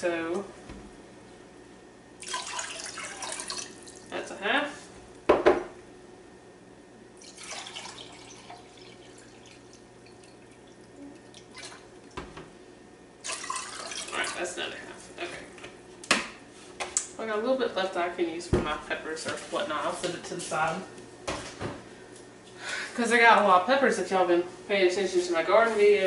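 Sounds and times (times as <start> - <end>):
liquid splashing: 2.2 - 4.1, 7.2 - 12.2, 13.2 - 14.6.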